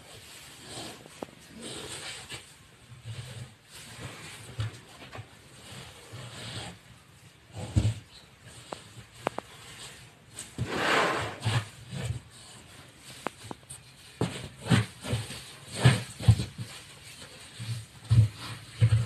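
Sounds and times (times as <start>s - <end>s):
elephant trampling rubber tire: 7.5s - 19.0s
rushing scrape in sand: 10.6s - 11.7s.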